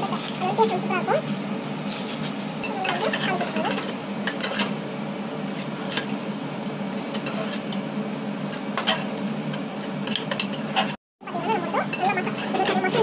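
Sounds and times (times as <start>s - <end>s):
vegetables sizzling in oil: 0.0s - 13.0s
ladle scraping metal pot: 10.4s - 13.0s.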